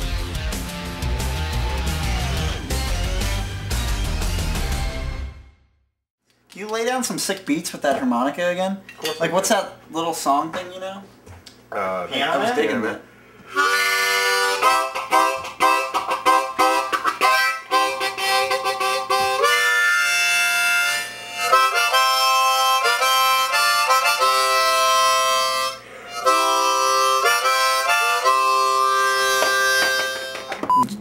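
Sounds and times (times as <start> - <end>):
harmonica playing chords: 0.0 - 5.4, 13.5 - 30.6.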